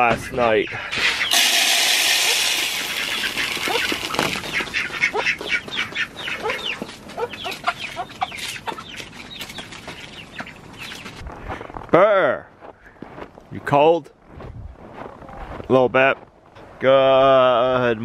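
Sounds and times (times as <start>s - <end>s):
chickens and ducks calling: 0.0s - 11.2s
birds pecking at feed: 0.8s - 11.2s
feed poured into plastic feeder: 1.3s - 4.4s.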